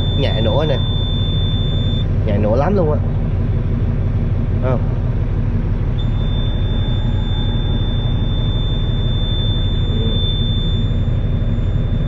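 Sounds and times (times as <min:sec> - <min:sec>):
high-pitched warning buzzer: 0:00.0 - 0:02.1, 0:06.0 - 0:12.0
diesel engine idling: 0:00.0 - 0:12.0.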